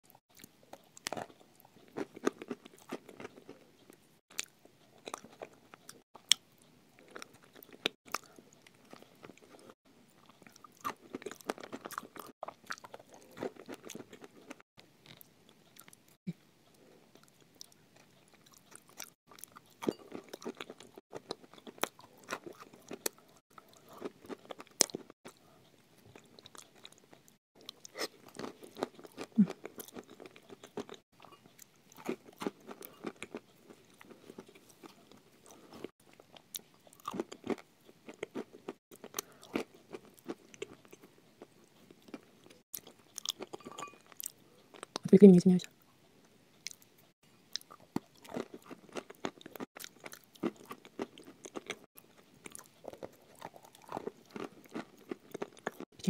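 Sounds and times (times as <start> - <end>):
crunching and chewing chalk: 0.1 - 45.0, 46.6 - 56.0.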